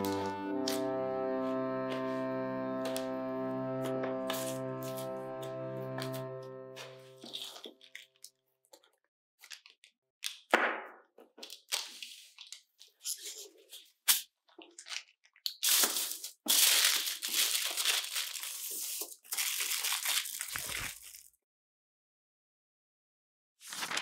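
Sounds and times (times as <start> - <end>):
aluminium foil crinkling: 7.2 - 9.8, 14.6 - 21.4.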